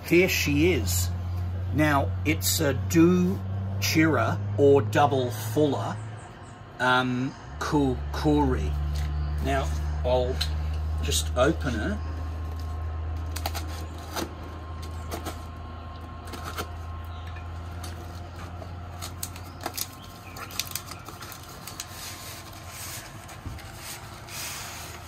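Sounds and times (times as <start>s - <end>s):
steady low hum: 0.0s - 25.0s
knife slitting packing tape: 13.2s - 14.3s
cardboard flaps scraping and rustling: 17.7s - 25.0s.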